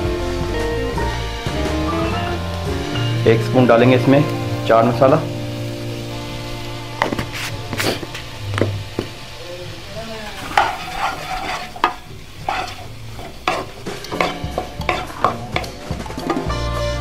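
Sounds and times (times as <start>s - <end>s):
frying sizzle: 0.0s - 17.0s
spatula scraping and knocking wok: 5.9s - 16.6s.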